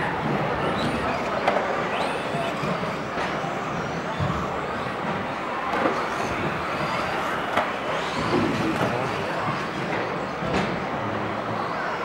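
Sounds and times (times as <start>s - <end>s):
model car motors whining: 0.0s - 10.3s
crowded hall din: 0.0s - 12.0s.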